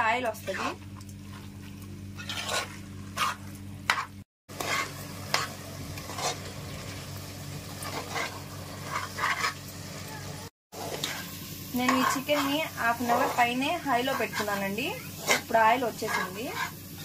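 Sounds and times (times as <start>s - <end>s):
low sizzle of frying chicken: 0.0s - 17.0s
spatula scraping metal pot: 2.2s - 6.5s, 7.8s - 9.6s, 10.8s - 17.0s.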